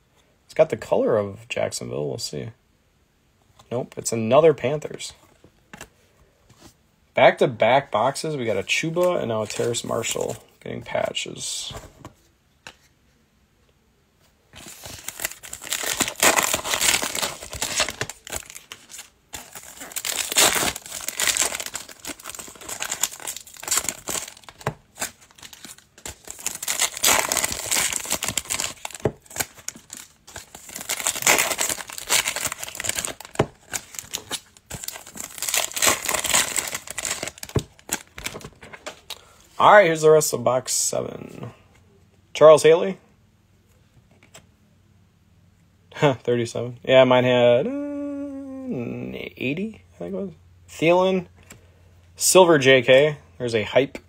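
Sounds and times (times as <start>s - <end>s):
foil wrappers crinkling and tearing: 14.6s - 38.6s
cards being handled: 14.6s - 39.2s.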